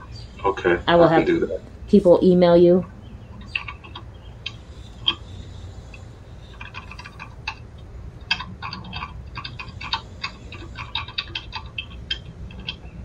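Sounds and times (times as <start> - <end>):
low steady hum: 0.0 - 13.0
keyboard typing clicks: 5.9 - 7.6.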